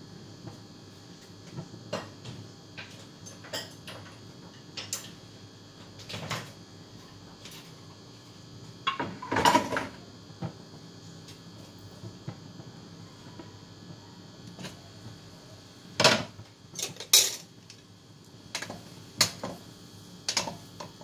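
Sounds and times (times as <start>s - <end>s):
kitchenware clatter: 8.8s - 10.0s, 16.0s - 17.5s, 20.3s - 20.9s.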